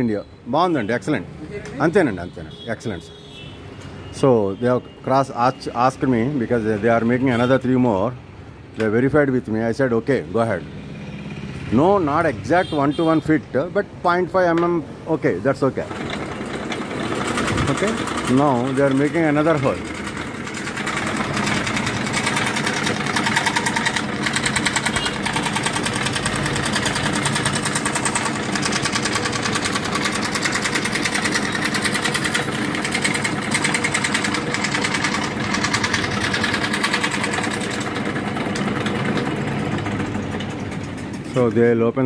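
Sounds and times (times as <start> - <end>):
scroll saw cutting board: 20.6 - 37.8.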